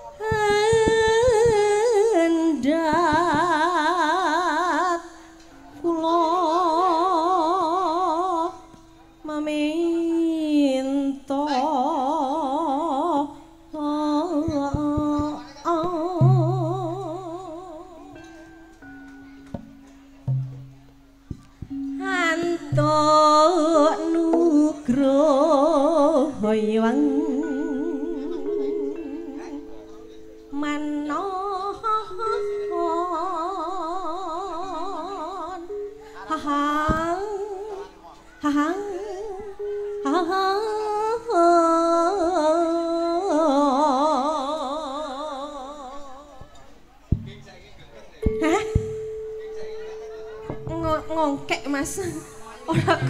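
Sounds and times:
person singing with vibrato: 0.0 - 18.4, 21.7 - 29.9, 30.5 - 46.4
sustained accompanying tones: 12.1 - 37.7, 48.3 - 53.0.

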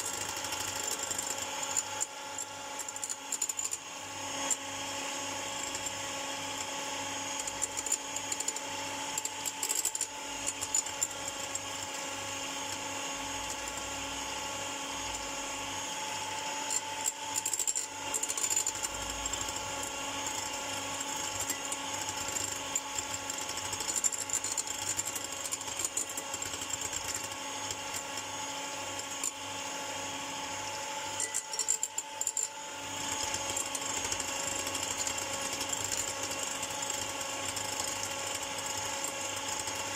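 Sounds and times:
electric hand mixer whine: 0.0 - 39.9
beaters clicking and rattling in bowl: 6.6 - 14.3, 16.4 - 28.3, 31.1 - 39.9.

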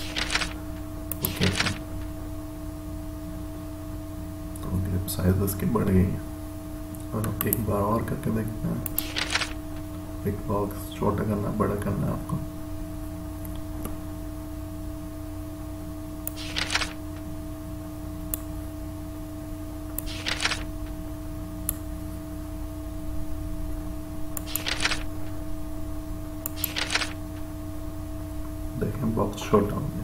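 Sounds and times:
computer mouse clicks: 0.0 - 1.8, 8.8 - 9.5, 20.0 - 20.6, 24.4 - 25.0, 26.4 - 27.2
steady electrical hum: 0.0 - 30.0.

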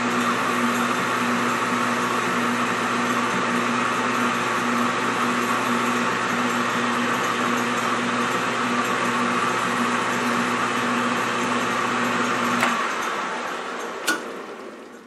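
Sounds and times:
bench lathe motor humming: 0.0 - 15.0.

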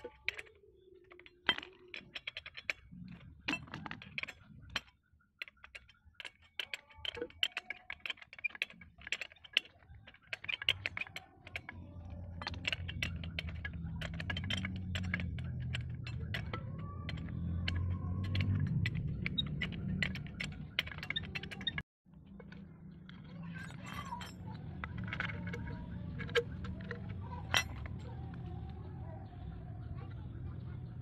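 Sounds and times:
wrench clicking on metal bolts: 0.0 - 21.8.

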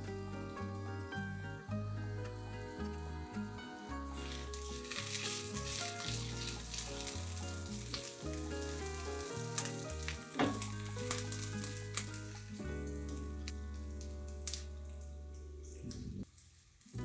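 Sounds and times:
onions sizzling in oil: 3.8 - 14.8, 16.2 - 17.0.

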